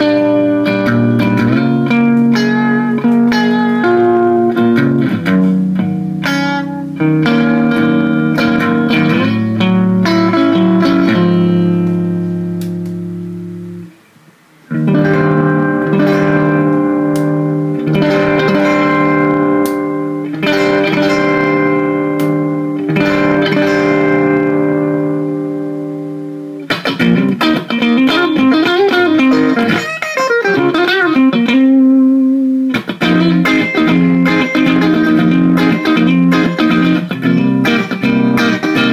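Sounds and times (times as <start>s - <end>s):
electric guitar chords: 0.0s - 38.9s
electric guitar single notes: 0.0s - 38.9s.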